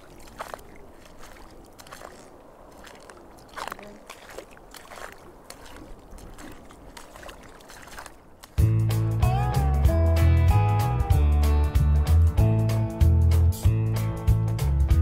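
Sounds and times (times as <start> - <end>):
footsteps wading through water: 0.0 - 8.7.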